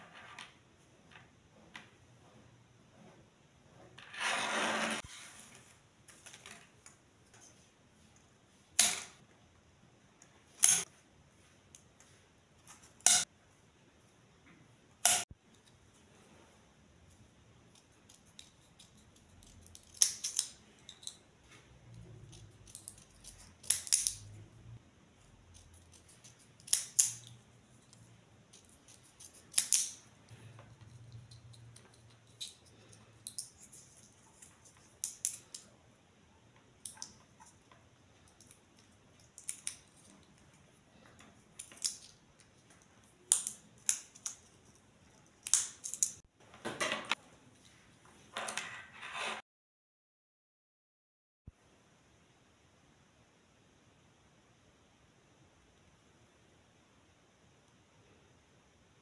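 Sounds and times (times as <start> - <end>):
scissors snipping plastic straws: 17.7 - 21.2, 22.2 - 24.2, 25.8 - 27.3, 28.5 - 30.0.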